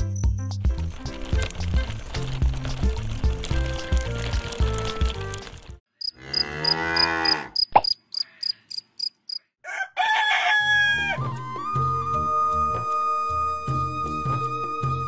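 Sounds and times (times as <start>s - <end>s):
background music: 0.0s - 5.8s, 10.6s - 15.0s
crickets chirping: 6.0s - 9.5s
cow mooing: 6.1s - 7.6s.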